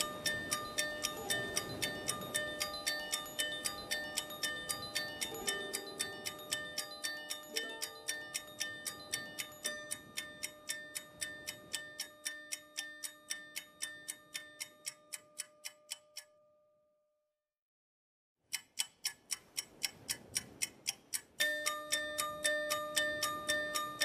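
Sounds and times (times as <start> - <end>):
held music tones: 0.0 - 16.0
clock-like ticking beat: 0.0 - 16.3, 18.5 - 24.0.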